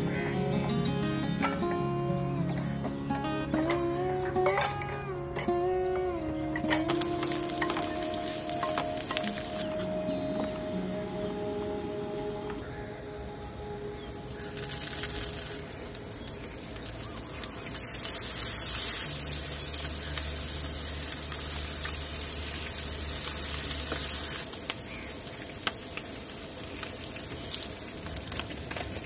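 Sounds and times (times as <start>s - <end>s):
low hum: 0.0s - 24.4s
crackles and pops: 4.4s - 10.7s, 14.1s - 29.0s
meat sizzling in a frying pan: 6.9s - 9.6s, 14.3s - 29.0s.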